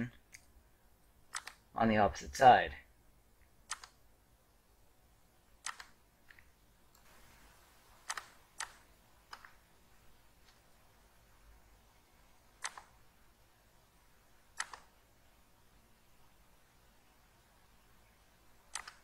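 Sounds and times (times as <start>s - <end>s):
computer mouse clicking: 1.3s - 1.6s, 3.4s - 4.0s, 5.6s - 7.1s, 8.0s - 9.6s, 12.6s - 13.0s, 14.6s - 15.0s, 18.6s - 19.0s.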